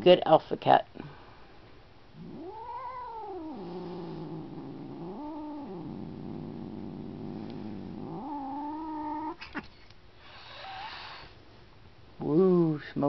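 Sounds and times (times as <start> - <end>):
cat growling and yowling: 2.2 - 9.7.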